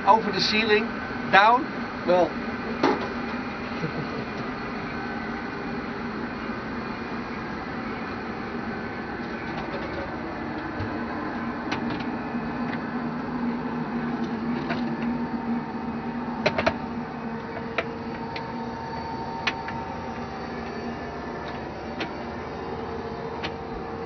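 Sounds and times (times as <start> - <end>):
ventilation fans humming: 0.0 - 24.0.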